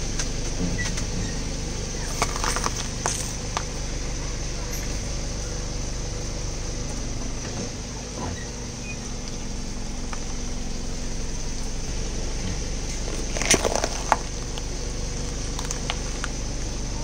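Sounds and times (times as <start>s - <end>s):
car engine idling: 0.0s - 17.0s
pepper crunching under tyre: 2.0s - 3.7s, 13.0s - 17.0s.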